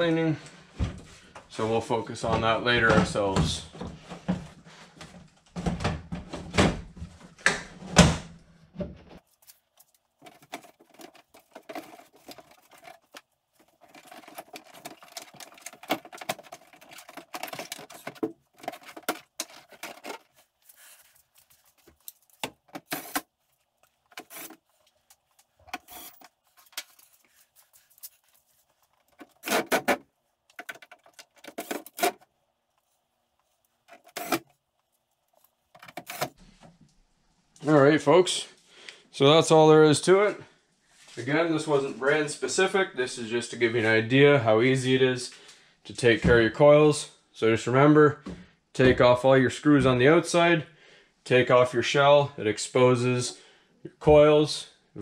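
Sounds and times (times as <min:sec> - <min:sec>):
cordless drill driving screws: 0:25.8 - 0:26.2
plastic panels clicking and knocking: 0:29.1 - 0:32.2.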